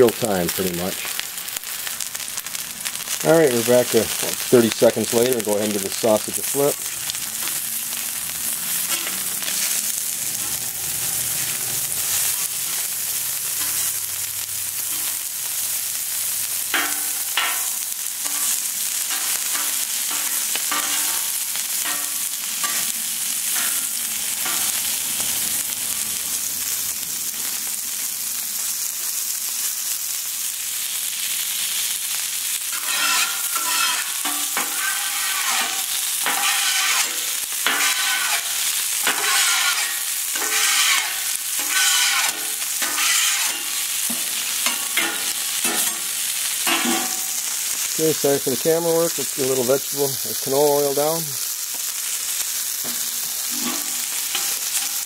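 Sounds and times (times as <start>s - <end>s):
sausage sizzling on griddle: 0.0s - 55.0s
metal spatula scraping griddle: 2.4s - 14.1s, 14.7s - 15.6s, 16.7s - 24.9s, 32.7s - 47.5s, 52.8s - 55.0s.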